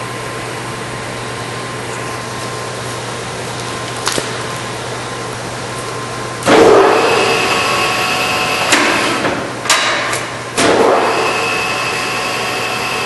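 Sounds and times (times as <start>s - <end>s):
lathe gear whine: 6.7s - 9.3s, 11.0s - 13.0s.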